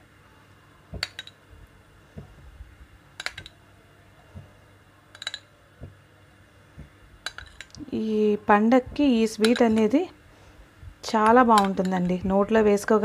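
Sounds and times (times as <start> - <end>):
spoon clinking against bowl: 5.2 - 5.5.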